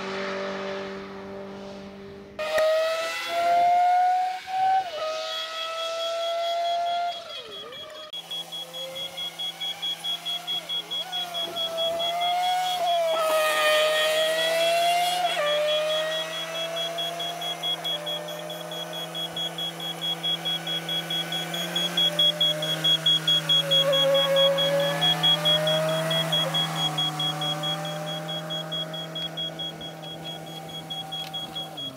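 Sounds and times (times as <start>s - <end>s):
race car engines passing: 0.0s - 31.9s
rapid electronic beeping alarm: 2.8s - 31.9s
diesel engine running: 6.6s - 31.9s.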